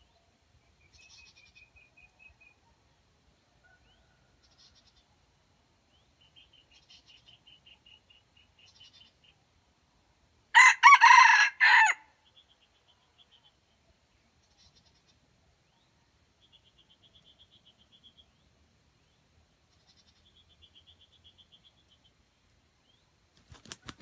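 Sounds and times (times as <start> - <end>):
rooster crowing: 10.6 - 12.1.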